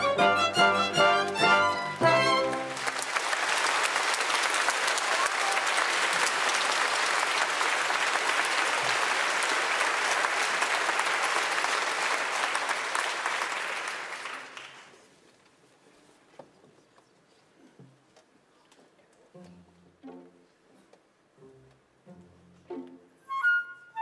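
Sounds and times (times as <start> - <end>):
orchestral music: 0.0 - 2.9
audience applauding: 2.0 - 15.0.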